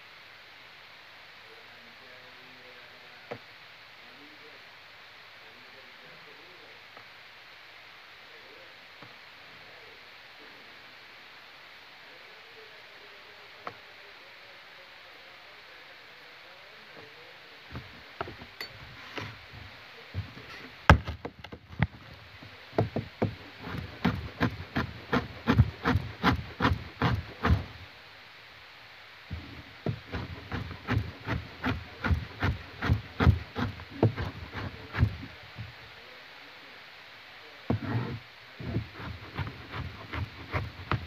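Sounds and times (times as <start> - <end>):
knife chopping on cutting board: 22.8 - 27.7, 29.9 - 35.2.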